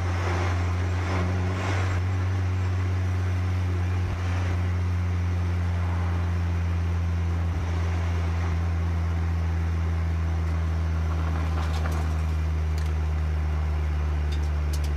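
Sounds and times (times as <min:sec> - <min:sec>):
car engine drone: 0:00.0 - 0:14.9.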